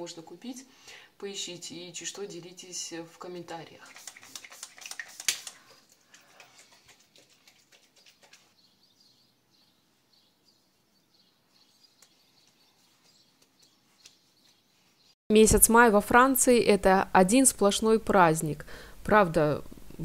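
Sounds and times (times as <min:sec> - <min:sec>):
faint birds chirping: 0:05.6 - 0:15.2.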